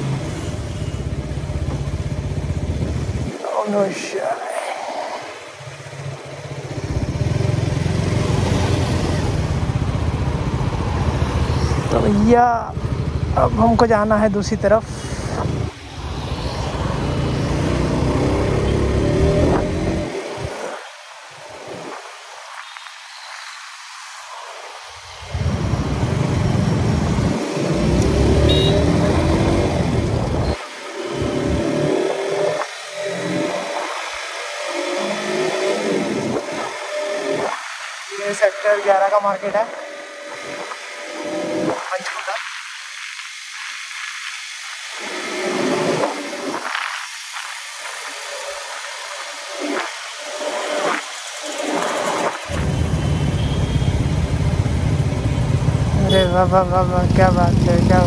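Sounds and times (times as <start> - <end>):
motorcycle engine revving: 5.3 - 13.6, 15.2 - 20.8, 25.3 - 37.5, 50.2 - 58.0.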